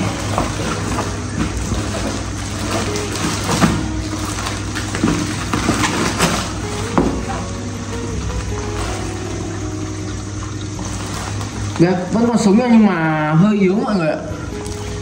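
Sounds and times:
wet cardboard rustling: 0.0 - 9.6
steady low hum: 0.0 - 15.0.

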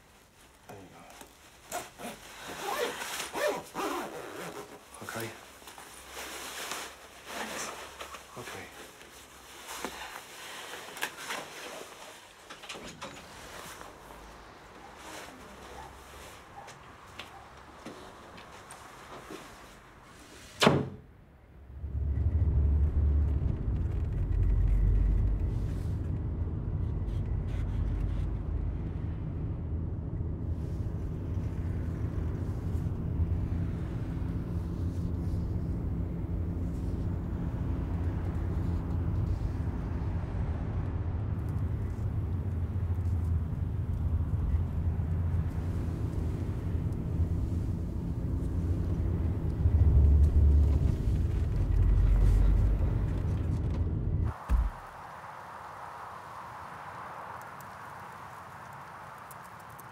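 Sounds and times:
door banging shut: 20.6 - 21.0
car driving rumble inside cabin: 21.7 - 54.8.

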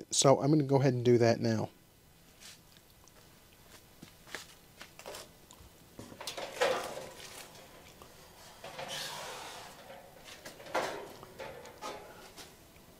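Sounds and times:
hands handling sheet metal: 6.0 - 12.6
scraping rustle: 6.0 - 12.6.

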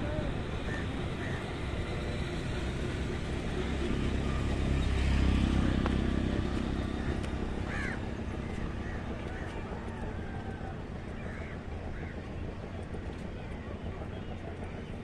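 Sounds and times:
outdoor background rumble: 0.0 - 15.0.

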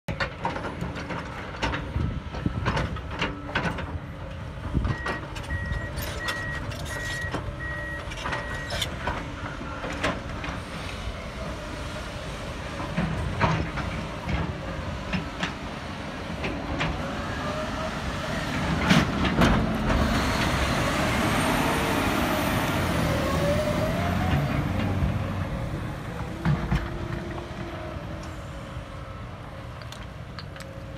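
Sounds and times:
digging machinery clanks: 0.1 - 10.8
dump truck diesel engine: 0.1 - 30.9
reversing alarm beeping: 4.9 - 9.9.

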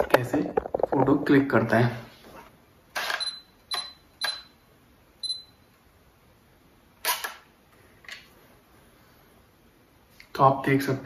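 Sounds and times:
camera high beep: 3.0 - 4.6
camera shutter double click: 7.0 - 7.4.

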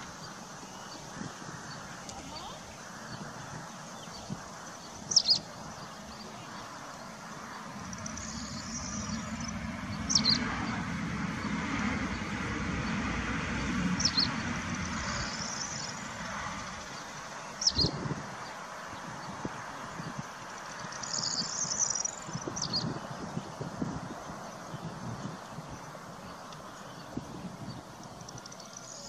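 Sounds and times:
bird chirping: 0.0 - 13.0, 14.0 - 29.0
faint bird twittering: 0.0 - 13.0, 14.0 - 29.0
low rumble: 7.0 - 17.1.

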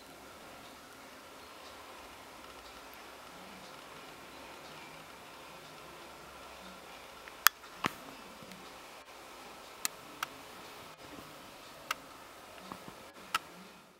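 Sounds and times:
faint steady hiss: 0.0 - 13.9.

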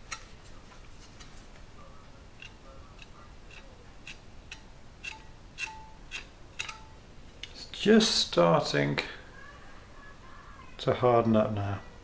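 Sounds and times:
filling knife clicking and scraping: 2.4 - 7.6.

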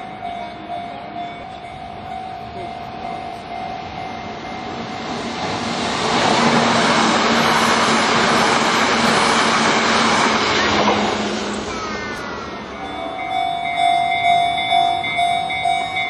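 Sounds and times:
level crossing warning bell: 0.0 - 5.6, 12.6 - 16.0
train wheels running past: 0.0 - 16.0.

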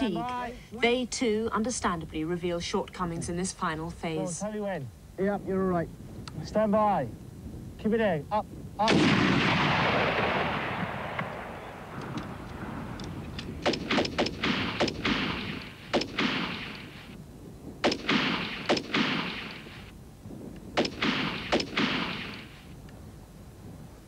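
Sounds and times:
rifle shots with echo: 8.8 - 17.2, 17.8 - 19.9, 20.7 - 22.7.

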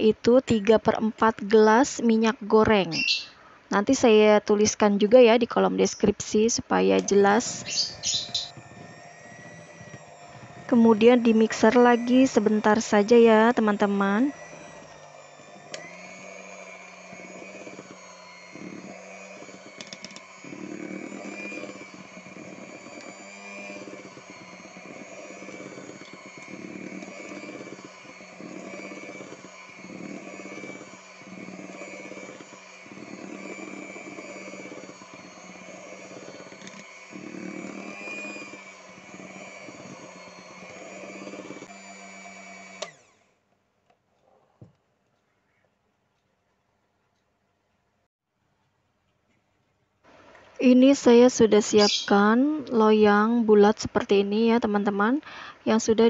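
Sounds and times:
electric hand mixer running: 5.6 - 43.4, 50.1 - 56.0.

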